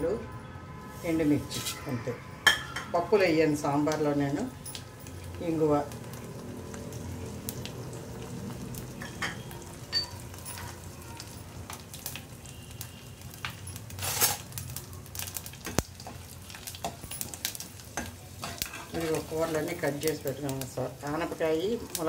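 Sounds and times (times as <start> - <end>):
spices sizzling in hot oil: 0.9 - 22.0
metal ladle stirring in pan: 15.6 - 19.7.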